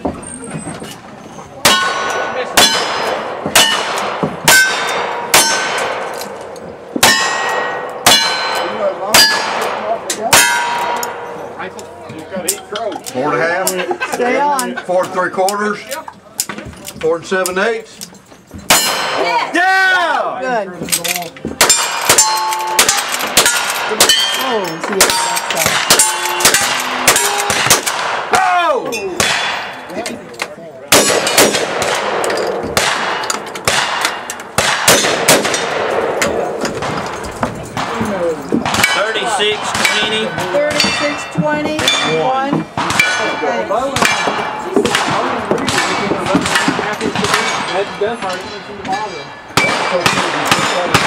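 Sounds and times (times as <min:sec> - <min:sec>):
revolver gunshots: 0:01.6 - 0:06.3, 0:21.6 - 0:28.3, 0:29.2 - 0:29.9, 0:30.9 - 0:38.0, 0:42.8 - 0:47.9, 0:49.6 - 0:51.0
steel plate target clanging: 0:01.6 - 0:11.8, 0:18.1 - 0:19.4, 0:21.6 - 0:28.1
rifle shots: 0:21.6 - 0:28.3, 0:30.9 - 0:37.2, 0:44.0 - 0:47.8, 0:49.6 - 0:51.0.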